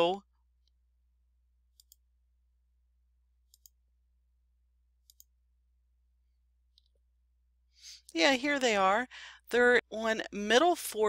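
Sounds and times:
computer mouse clicks: 1.7s - 2.0s, 3.4s - 3.8s, 5.0s - 5.3s.

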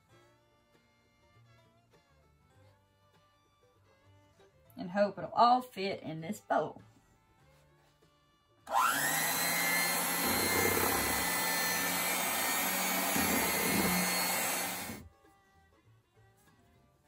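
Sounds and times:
electric hand mixer whining: 8.7s - 15.1s.

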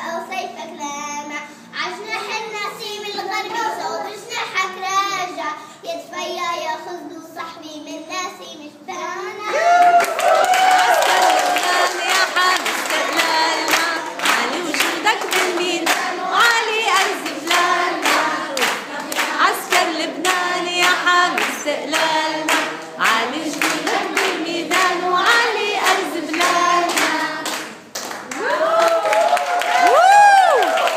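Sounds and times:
hands clapping to a beat: 9.8s - 30.9s
children singing: 11.2s - 27.8s.

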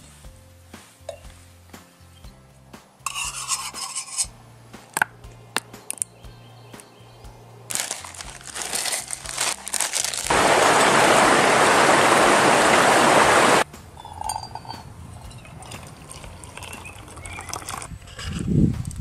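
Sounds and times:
camp cookware clinking: 1.0s - 1.4s, 3.0s - 6.1s, 7.7s - 11.0s, 13.8s - 18.5s
stream rushing: 7.7s - 13.6s.

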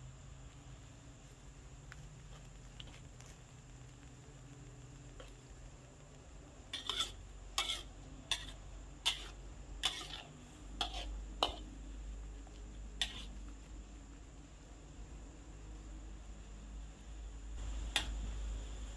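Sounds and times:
metal spatula scraping a wok: 6.7s - 11.8s, 13.0s - 13.4s.

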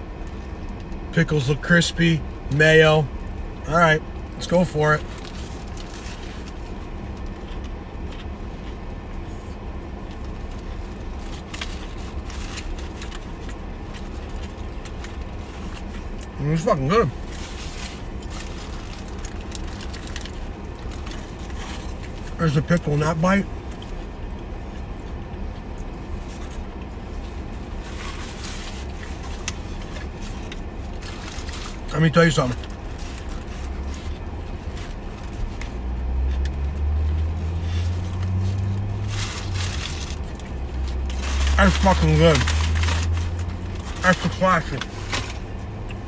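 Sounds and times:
car engine idling: 0.0s - 46.0s
chewing crispy food: 5.0s - 16.4s, 17.1s - 22.4s, 23.5s - 31.9s
paper napkin rustling: 37.2s - 45.6s.

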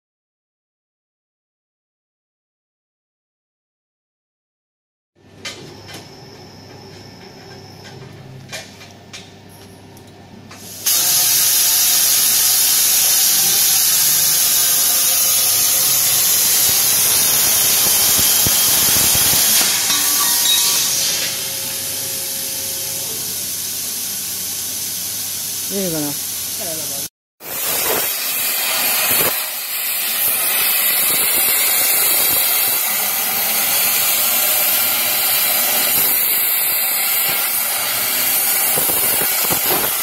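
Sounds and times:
plasma torch hissing: 10.6s - 40.0s.

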